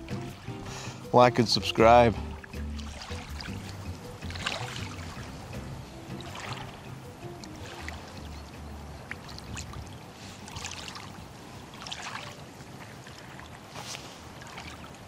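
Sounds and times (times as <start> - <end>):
wind rumbling on microphone: 7.9 - 15.0
small waves on shingle: 10.0 - 15.0.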